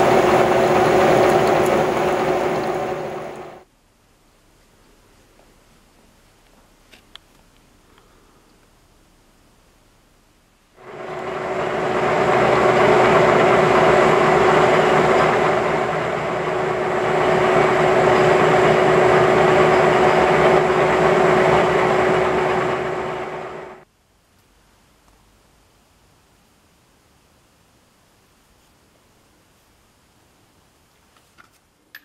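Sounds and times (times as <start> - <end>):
metal lathe running: 0.0 - 3.6, 10.8 - 23.8.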